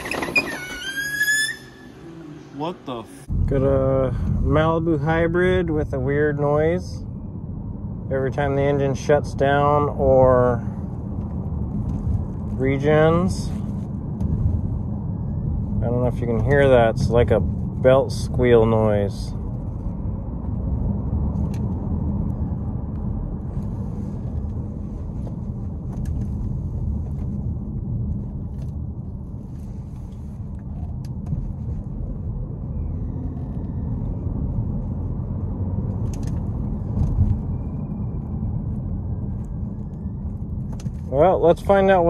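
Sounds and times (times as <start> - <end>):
faint high squeal: 0.0 - 2.7, 32.7 - 34.2, 37.2 - 40.5
road and drivetrain rumble: 0.0 - 42.0.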